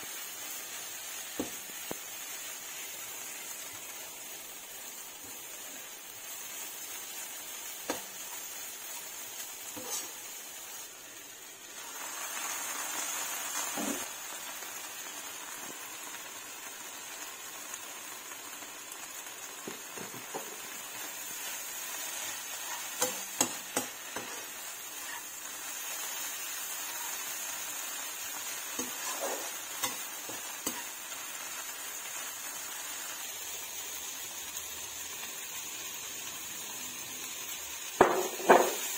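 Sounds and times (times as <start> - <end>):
food sizzling in a wok: 0.0 - 38.9
metal spatula scraping and tapping: 9.7 - 10.2, 22.6 - 24.4, 28.8 - 30.9.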